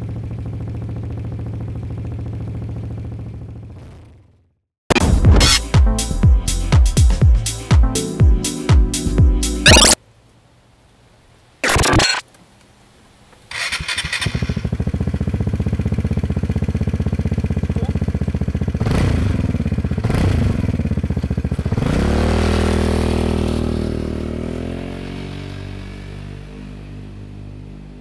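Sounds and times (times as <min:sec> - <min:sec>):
scooter engine idling and revving: 0:00.0 - 0:04.6, 0:13.5 - 0:28.0.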